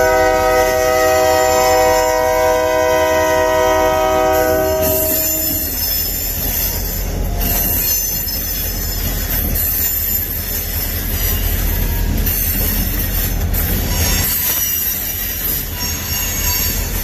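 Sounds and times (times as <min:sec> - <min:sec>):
locomotive air horn chord: 0:00.0 - 0:05.7
train rumble: 0:00.0 - 0:17.0
high-pitched wheel squeal: 0:04.1 - 0:17.0.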